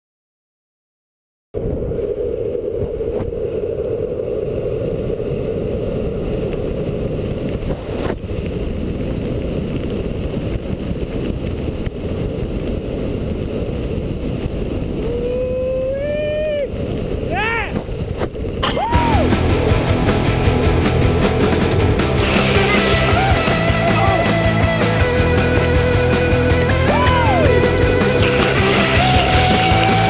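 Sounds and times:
wind on microphone: 0:01.6 - 0:19.3
wheels rolling on pavement: 0:01.8 - 0:15.1, 0:16.2 - 0:30.0.

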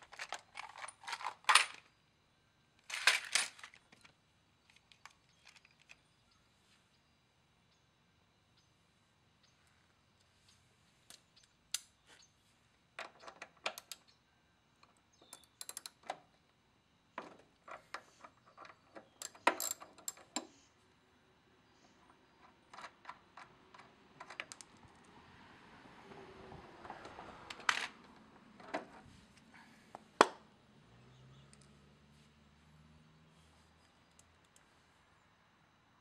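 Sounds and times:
metallic clicks and clinks of hardware: 0:15.2 - 0:16.2, 0:17.7 - 0:20.6.

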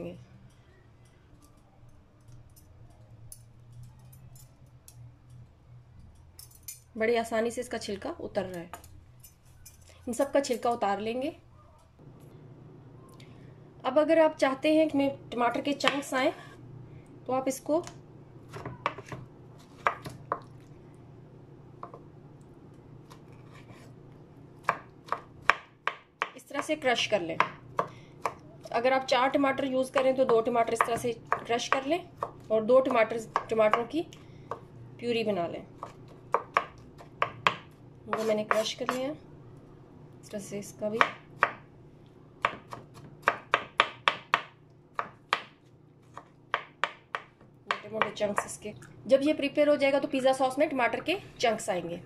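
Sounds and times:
knife chopping on wooden board: 0:18.5 - 0:20.4, 0:24.6 - 0:26.7, 0:35.8 - 0:39.0, 0:42.4 - 0:48.5
knife slicing tomato: 0:35.8 - 0:39.1.

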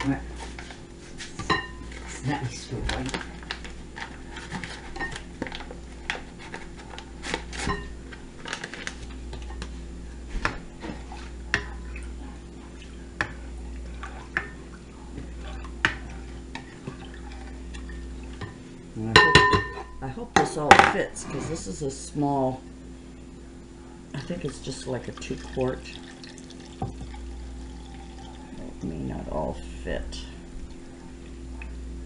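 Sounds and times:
low steady hum: 0:00.0 - 0:32.0
ladle clinking against bowl: 0:19.2 - 0:19.9.

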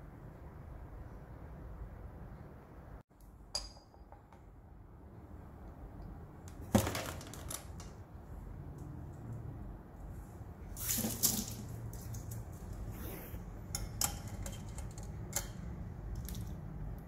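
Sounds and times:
metallic clicks and rattles: 0:13.7 - 0:16.6.

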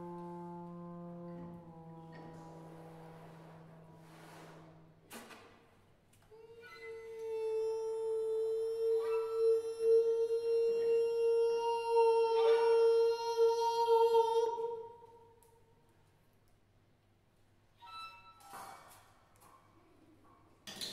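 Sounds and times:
man holding long high note: 0:00.0 - 0:05.0, 0:06.4 - 0:15.1.

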